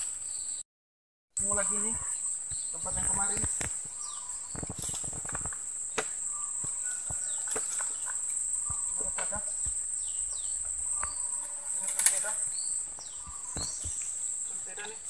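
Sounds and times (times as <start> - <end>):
insect chorus: 0.0 - 0.6, 1.4 - 15.0
snapping dry bamboo underfoot: 3.0 - 9.4, 11.0 - 14.2.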